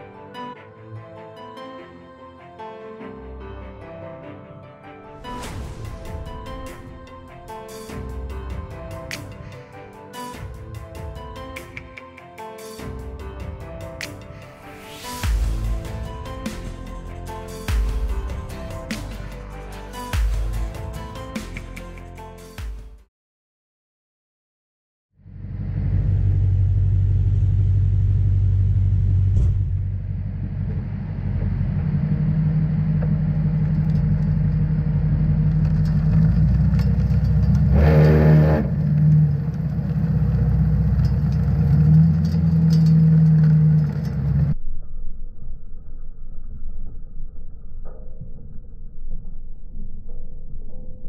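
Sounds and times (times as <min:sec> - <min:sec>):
rough rumble: 0:05.2 - 0:09.3, 0:25.2 - 0:51.0
truck engine and spreader humming: 0:25.3 - 0:44.6.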